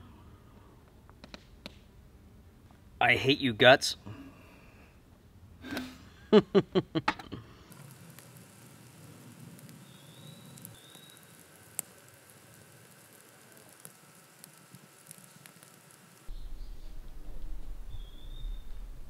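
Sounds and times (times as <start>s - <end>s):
campfire crackling: 0.0s - 3.0s, 3.6s - 19.0s
campfire pop: 0.5s - 1.9s, 5.6s - 18.9s.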